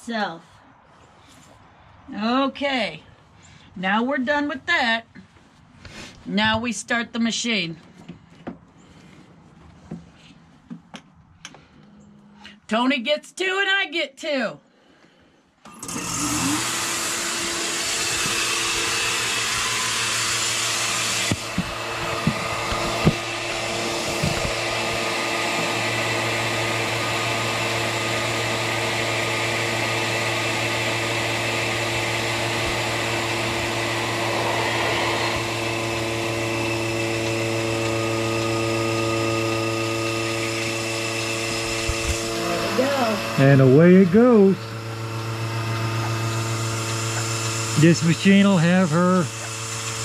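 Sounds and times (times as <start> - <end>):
vacuum pump humming: 15.6 - 50.0.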